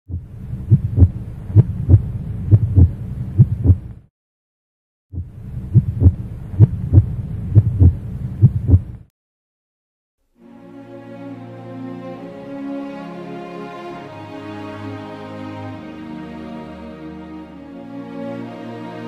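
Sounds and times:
heartbeat thumps: 0:00.1 - 0:04.1, 0:05.1 - 0:09.1
low hum: 0:00.1 - 0:04.1, 0:05.2 - 0:09.1.

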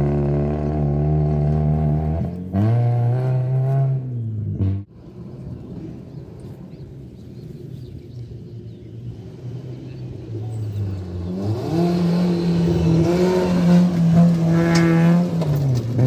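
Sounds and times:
rally car engine revving: 0:00.0 - 0:04.9, 0:09.1 - 0:16.0.

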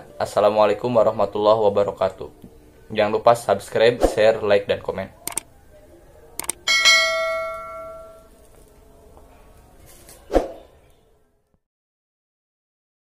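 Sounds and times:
bell ding: 0:06.7 - 0:08.3.

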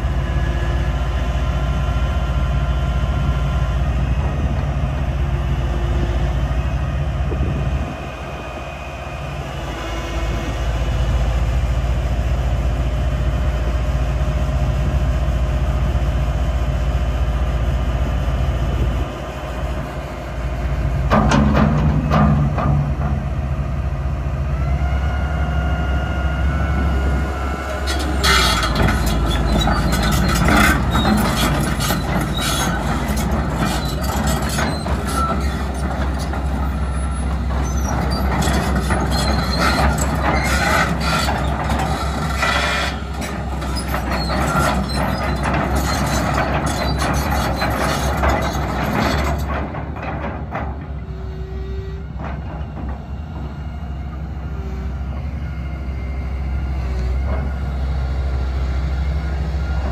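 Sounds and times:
excavator diesel drone: 0:00.0 - 0:59.9
track chains clanking and squeaking: 0:27.5 - 0:55.4.

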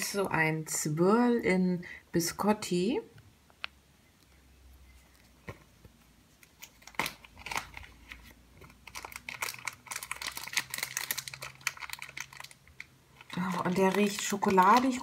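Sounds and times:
plastic bag crinkling: 0:06.4 - 0:15.0.

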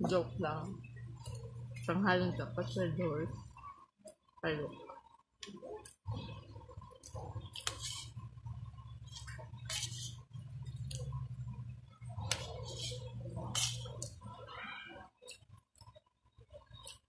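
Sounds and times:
low steady hum: 0:00.0 - 0:17.0
metal spoon scraping a plate: 0:07.6 - 0:08.2, 0:09.1 - 0:10.2, 0:12.4 - 0:14.1.

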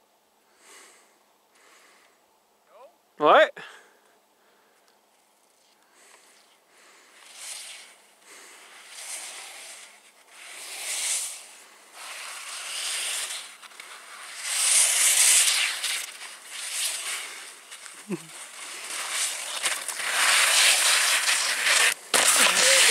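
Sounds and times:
skis scraping over snow: 0:05.5 - 0:22.9.

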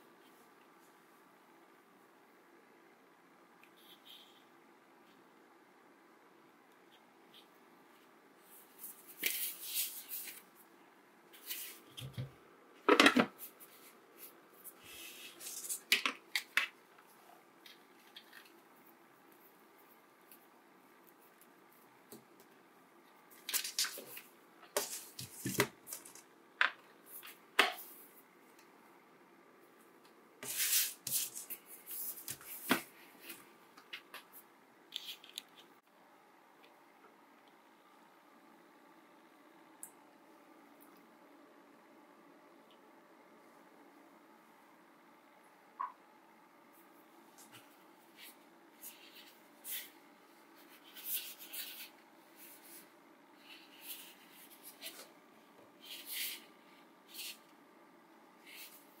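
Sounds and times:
plastic parts scraping and rustling: 0:23.4 - 0:26.3.

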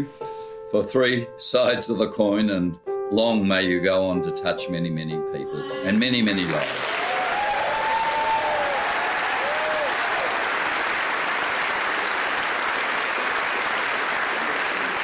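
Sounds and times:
audience applauding: 0:05.7 - 0:15.0
faint cheers: 0:05.8 - 0:10.7.

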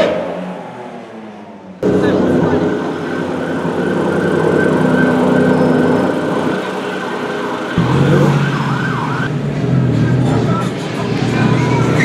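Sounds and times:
city traffic noise: 0:00.0 - 0:12.0
emergency siren wailing: 0:01.8 - 0:09.3.

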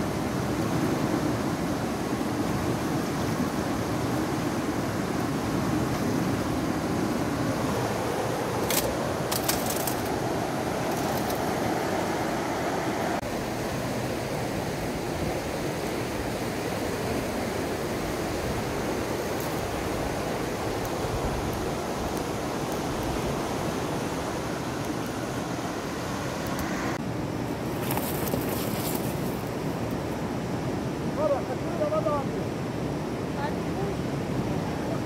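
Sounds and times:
mountain river rushing: 0:00.0 - 0:35.0.

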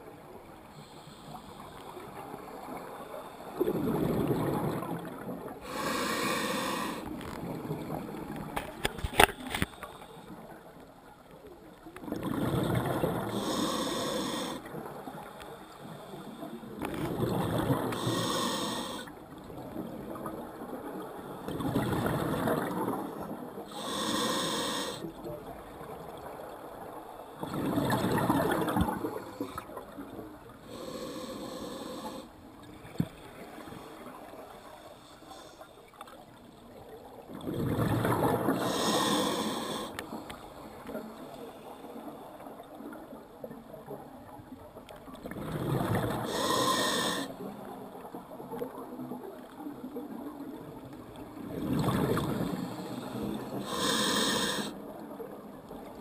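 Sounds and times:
exhaled bubbles underwater: 0:03.6 - 0:05.7, 0:12.0 - 0:15.3, 0:16.7 - 0:18.4, 0:19.4 - 0:24.0, 0:27.4 - 0:30.8, 0:36.6 - 0:39.9, 0:45.2 - 0:56.0
regulator inhalation hiss: 0:05.7 - 0:07.0, 0:13.3 - 0:14.6, 0:18.0 - 0:19.1, 0:23.7 - 0:25.1, 0:30.7 - 0:32.3, 0:38.6 - 0:40.0, 0:46.2 - 0:47.3, 0:52.6 - 0:54.8.

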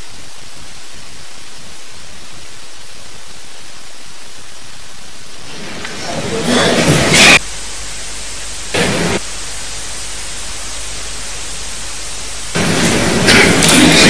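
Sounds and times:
static hiss: 0:00.0 - 0:14.0
loud noise bursts: 0:04.0 - 0:14.0.

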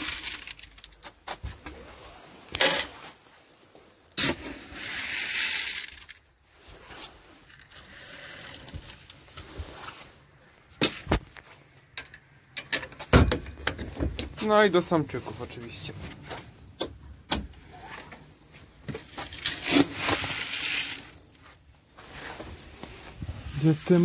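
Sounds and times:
feed rustling as poured: 0:00.0 - 0:01.0, 0:04.1 - 0:10.2, 0:19.0 - 0:24.0
knocks and clicks of wood and wire: 0:12.0 - 0:14.4.

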